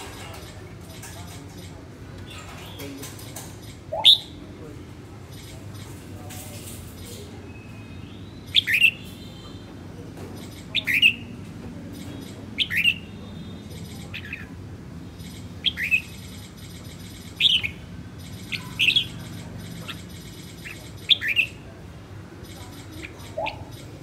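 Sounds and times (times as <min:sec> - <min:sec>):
bird chirping calls: 0:00.0 - 0:04.6, 0:05.2 - 0:06.2, 0:06.9 - 0:09.7, 0:10.3 - 0:24.0.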